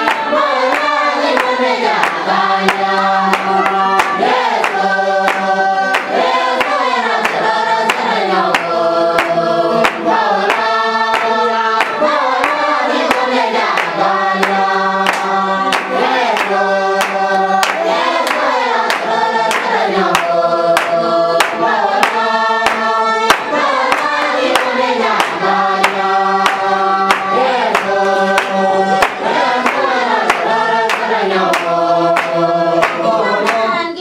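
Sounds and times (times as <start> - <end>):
group of adults singing: 0.0 - 34.0
people clapping along: 0.0 - 34.0.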